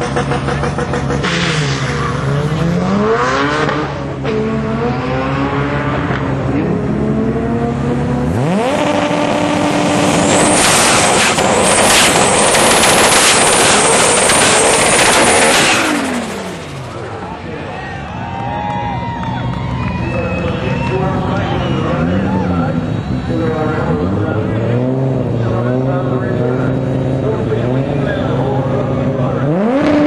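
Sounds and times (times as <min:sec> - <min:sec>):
car engine revving: 0:00.0 - 0:17.8, 0:19.2 - 0:30.0.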